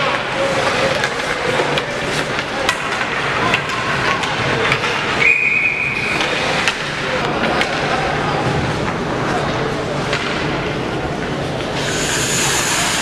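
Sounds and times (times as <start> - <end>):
hockey sticks and puck clacking: 0.0 - 13.0
referee whistle blast: 5.2 - 6.0.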